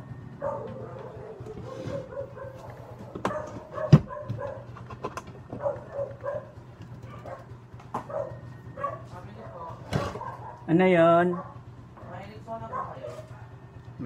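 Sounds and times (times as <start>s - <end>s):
dog barking and yipping: 0.4s - 4.8s, 5.4s - 11.7s, 12.6s - 13.6s.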